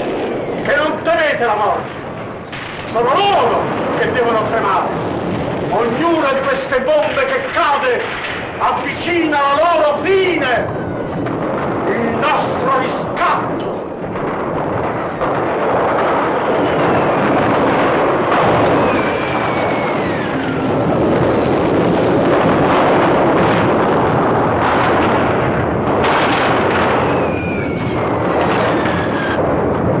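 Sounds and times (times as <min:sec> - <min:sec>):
bombing and anti-aircraft gunfire: 0:00.0 - 0:30.0
high falling whistle: 0:18.7 - 0:20.7, 0:27.0 - 0:28.2.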